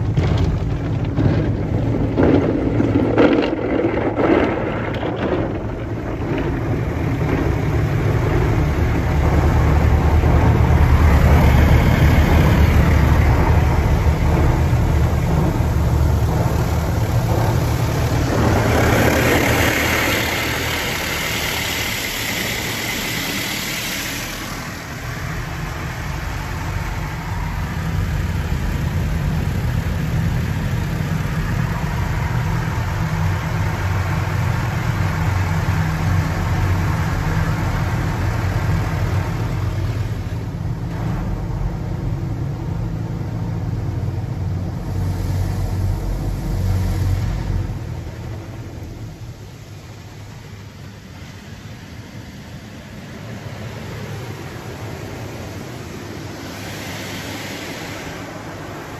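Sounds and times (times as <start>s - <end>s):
car wash equipment rumble: 0.0s - 58.9s
water spraying against glass: 15.2s - 25.4s.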